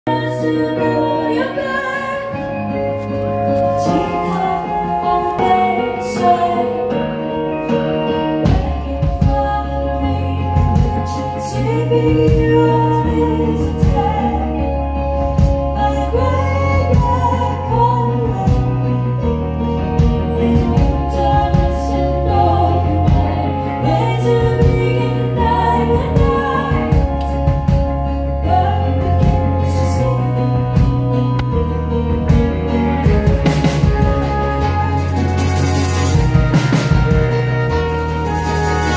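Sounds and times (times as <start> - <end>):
person singing: 0.1 - 19.2
bass line: 0.1 - 38.9
drums: 0.1 - 38.9
live band playing: 0.1 - 38.9.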